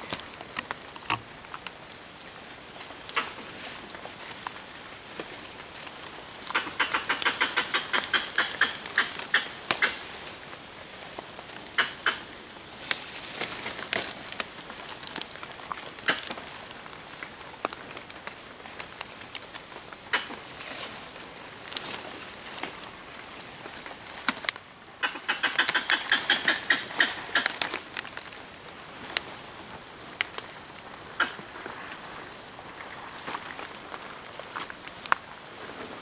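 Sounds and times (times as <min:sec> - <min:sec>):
twigs crackling and snapping: 0:00.0 - 0:32.1, 0:32.8 - 0:35.5
footsteps through dry leaves: 0:12.6 - 0:16.9.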